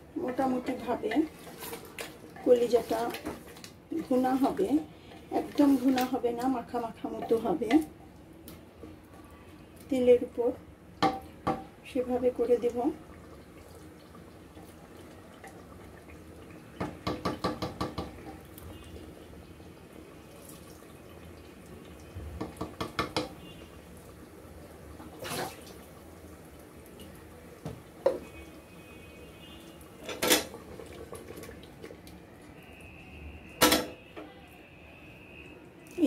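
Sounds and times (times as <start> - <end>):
spatula knocking on pot: 11.0 - 11.7, 16.8 - 18.2, 22.4 - 23.4.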